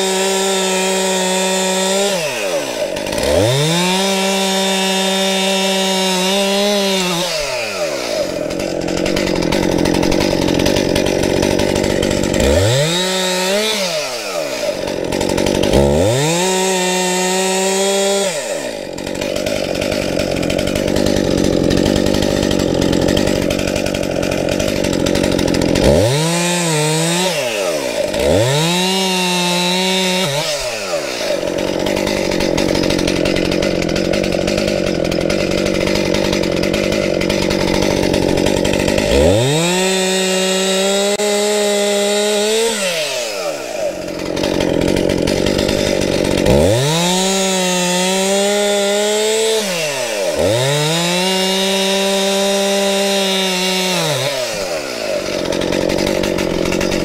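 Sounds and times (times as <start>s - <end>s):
chainsaw revving: 0.0s - 57.0s.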